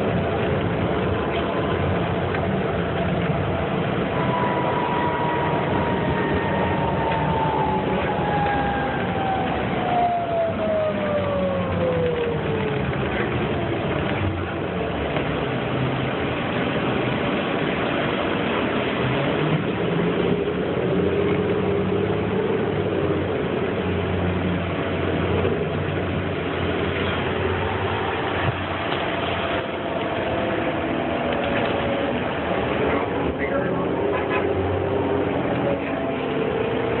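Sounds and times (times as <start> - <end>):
transmission whine: 0.0 - 13.2, 26.6 - 37.0
bus engine running: 0.0 - 37.0
tyre and road noise: 0.0 - 37.0.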